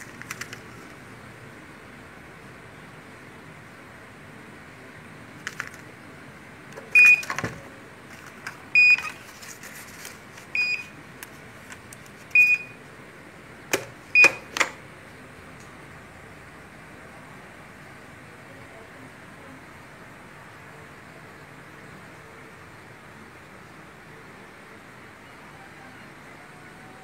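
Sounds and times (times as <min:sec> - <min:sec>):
paper rustling: 0:00.0 - 0:01.0, 0:05.4 - 0:05.9, 0:07.2 - 0:10.6
printer short high beeps: 0:06.9 - 0:07.6, 0:08.8 - 0:09.2, 0:10.6 - 0:10.9, 0:12.4 - 0:12.8, 0:14.2 - 0:14.5.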